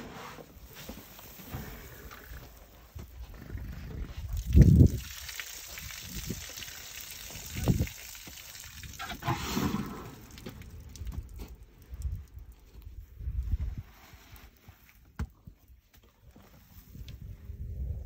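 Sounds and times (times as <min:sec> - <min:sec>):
elephants blowing through trunks: 0:09.0 - 0:10.4.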